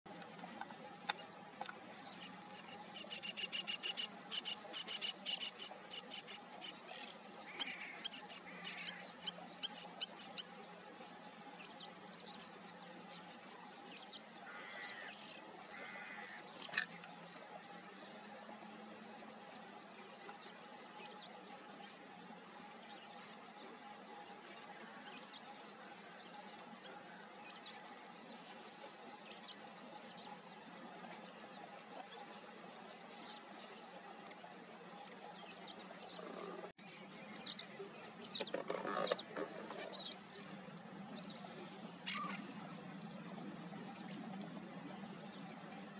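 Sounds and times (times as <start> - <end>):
small birds chirping: 0.6 - 15.2, 34.4 - 44.3.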